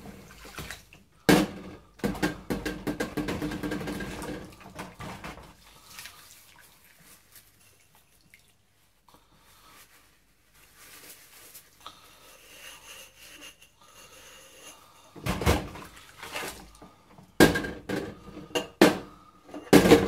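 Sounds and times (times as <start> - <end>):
water splashing: 0.0 - 1.0, 3.2 - 8.6
dishes clinking and knocking: 1.3 - 5.5, 15.2 - 15.9, 17.4 - 20.0.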